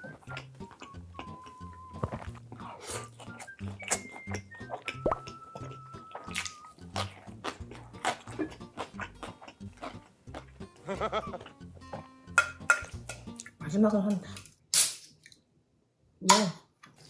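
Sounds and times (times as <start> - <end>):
crunchy chewing: 0.0 - 11.6
background music: 0.0 - 14.2.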